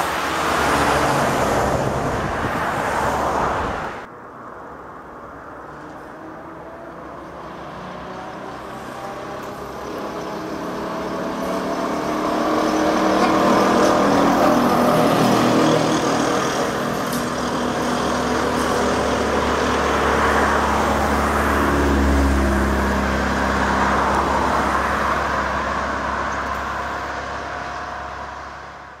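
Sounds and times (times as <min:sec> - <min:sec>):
passing car rumble: 0:00.0 - 0:29.0
tyre and road noise: 0:00.0 - 0:29.0
trolleybus electric motor whine: 0:07.7 - 0:21.0.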